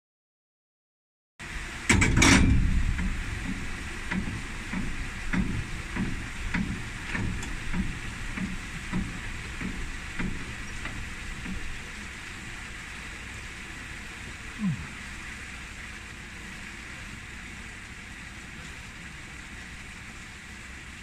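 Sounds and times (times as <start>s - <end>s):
steady hiss: 1.4s - 21.0s
railway car clunk: 1.7s - 12.0s.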